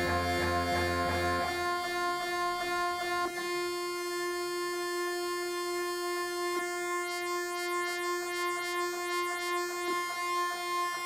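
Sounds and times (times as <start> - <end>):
sustained electronic tones: 0.0 - 1.6
high sweeping tone: 0.0 - 1.7.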